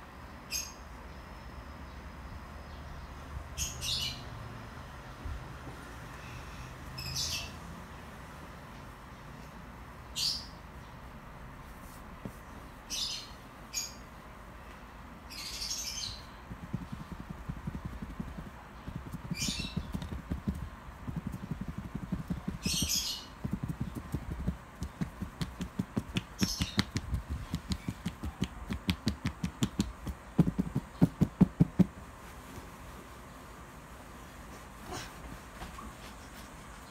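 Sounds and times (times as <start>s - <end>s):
fingers tapping on microphone: 16.4s - 32.0s.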